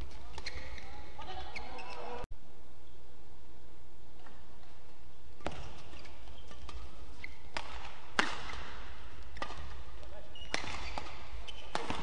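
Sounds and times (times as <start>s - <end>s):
shoes squeaking on court floor: 0.0s - 2.2s, 5.4s - 12.0s
low hall hum: 0.0s - 12.0s
rackets hitting shuttlecock: 5.4s - 12.0s.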